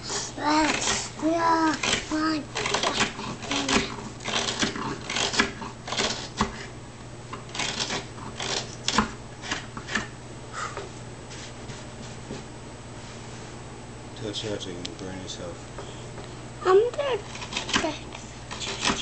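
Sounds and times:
carving tool scraping wood: 0.5s - 6.7s.

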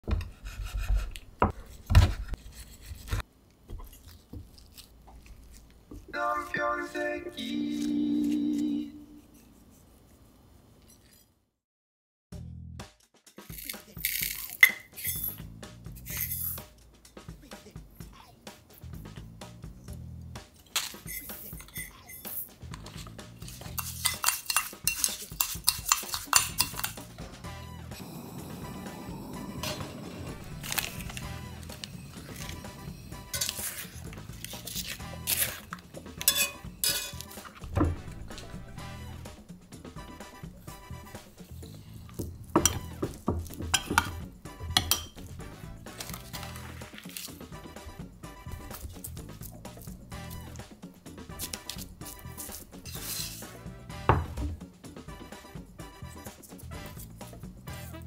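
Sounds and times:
music: 6.1s - 9.2s, 12.3s - 58.0s
metal spoon stirring in ceramic bowl: 20.6s - 27.1s, 33.2s - 37.6s, 41.5s - 44.2s, 44.8s - 45.3s, 51.4s - 53.5s
knife slicing food: 33.3s - 37.6s
knife knocking on wooden board: 54.1s - 54.6s.

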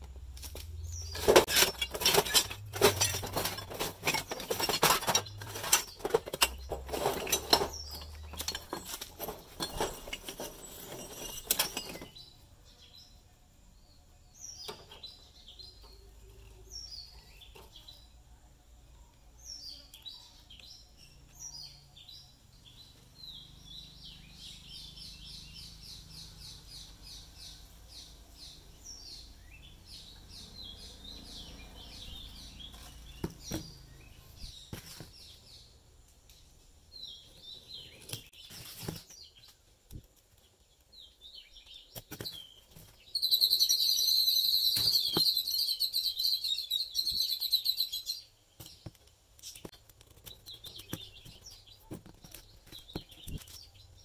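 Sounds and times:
birds chirping: 0.0s - 54.0s
scrap metal clattering: 1.0s - 12.3s.

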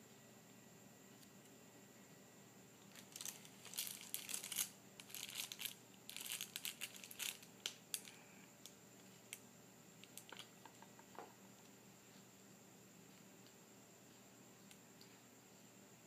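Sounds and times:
plastic ribbon cable crinkling: 2.8s - 8.2s, 10.0s - 10.5s.

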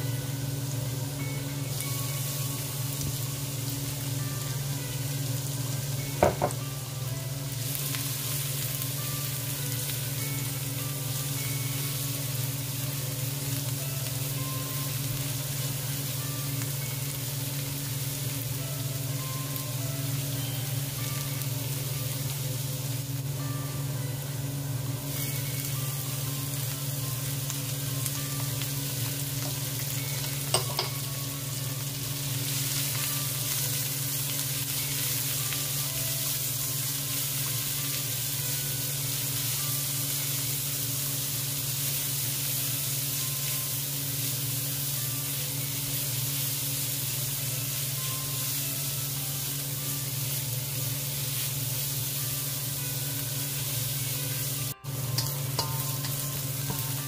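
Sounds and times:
onions sizzling in oil: 0.0s - 57.0s.

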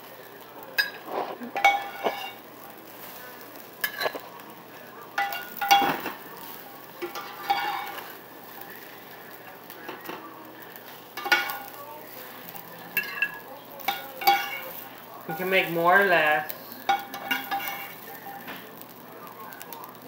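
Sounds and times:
faint pan sizzle: 0.0s - 20.0s
metal spatula scraping skillet: 0.8s - 4.5s, 5.1s - 9.2s, 9.9s - 18.1s.

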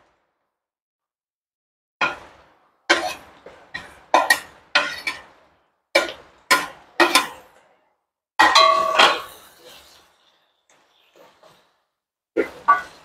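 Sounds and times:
wooden stick knocking metal wok: 2.0s - 5.2s, 6.0s - 7.5s, 8.4s - 9.4s, 12.4s - 13.0s.

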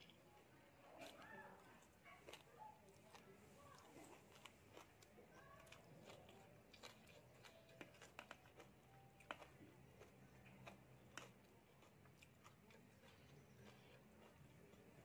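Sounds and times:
chewing noodles: 0.0s - 15.0s.

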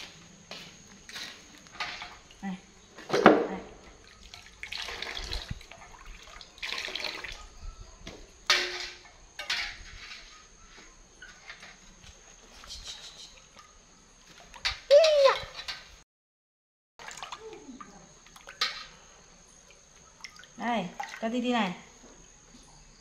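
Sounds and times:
water sloshing in metal basin: 1.1s - 7.6s, 8.2s - 12.6s, 13.3s - 16.0s, 17.0s - 23.0s.

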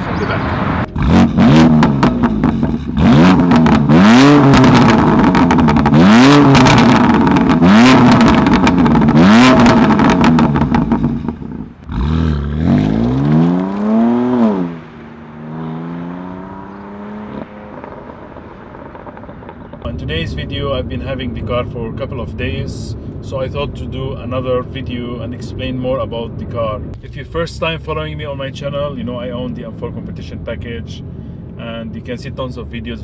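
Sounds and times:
car engine revving: 0.0s - 32.8s
exhaust pops: 0.9s - 15.7s.

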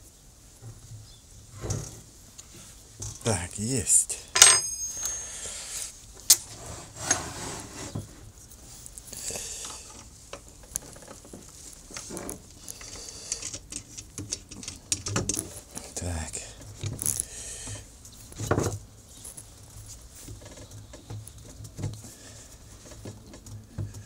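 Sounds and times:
small knocks and scrapes: 0.6s - 3.2s, 5.7s - 16.0s, 16.6s - 24.0s
metal parts clinking: 4.3s - 5.3s, 16.9s - 17.3s
loud metallic clank: 4.4s - 5.2s.

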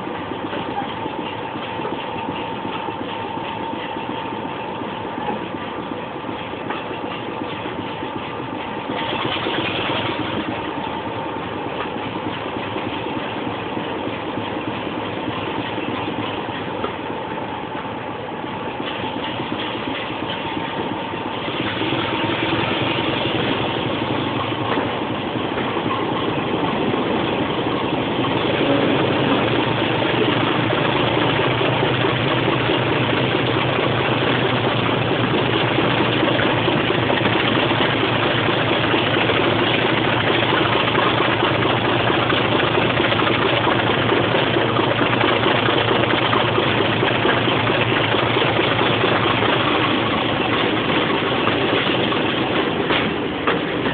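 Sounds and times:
diesel locomotive engine running: 0.0s - 53.9s.

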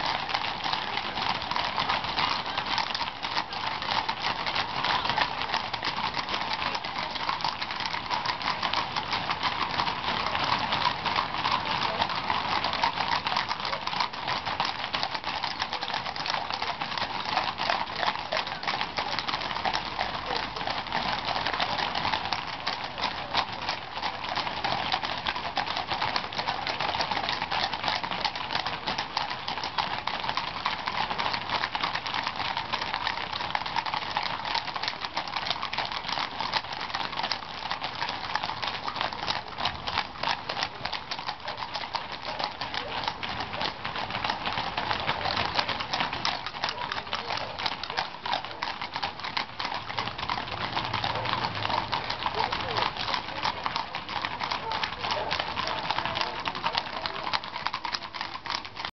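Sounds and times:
hooves clip-clopping on tarmac: 0.0s - 58.9s.

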